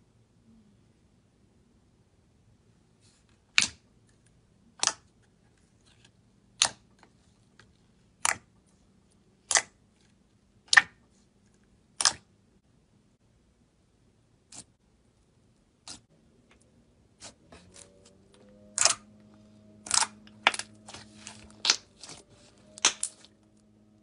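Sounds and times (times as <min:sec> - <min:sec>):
finger popping slime: 0:09.5 - 0:09.7, 0:10.7 - 0:11.0.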